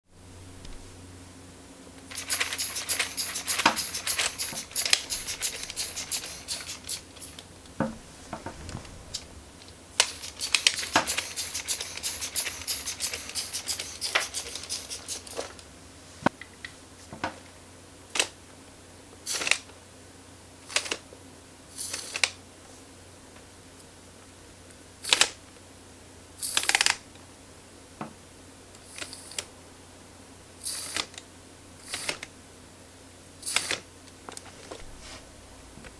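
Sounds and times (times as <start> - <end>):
pneumatic engine clicking: 2.1 - 7.5, 10.0 - 15.5, 19.3 - 19.6, 25.0 - 25.4, 26.4 - 27.0, 30.6 - 31.2, 31.8 - 32.2, 33.4 - 33.8
short air hisses: 2.1 - 15.5, 33.4 - 33.8.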